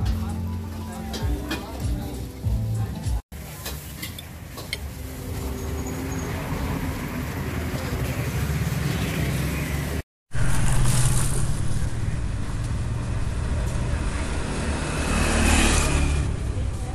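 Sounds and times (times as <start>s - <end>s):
vehicles passing on road: 4.2s - 16.9s
low engine hum: 10.4s - 16.9s.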